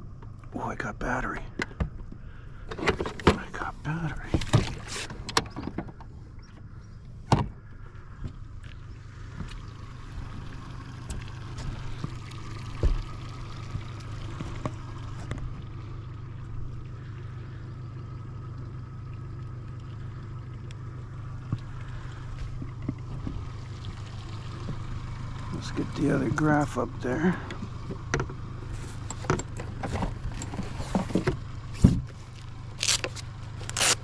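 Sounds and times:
boat motor humming: 0.0 - 34.0.

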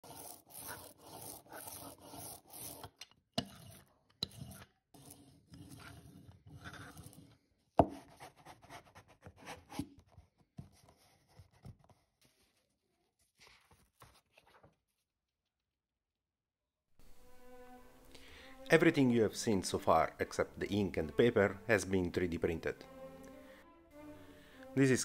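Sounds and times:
ink roller rolling strokes: 0.0 - 7.5.

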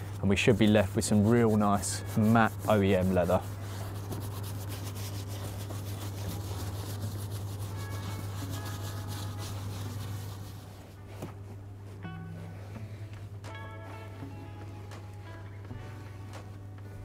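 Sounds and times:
scrubbing leather steering wheel: 0.0 - 11.5.

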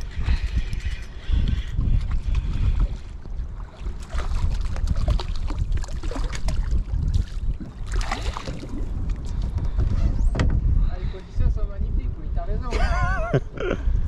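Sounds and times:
waves lapping against boat: 0.0 - 11.7
wind buffeting microphone: 0.0 - 14.0.

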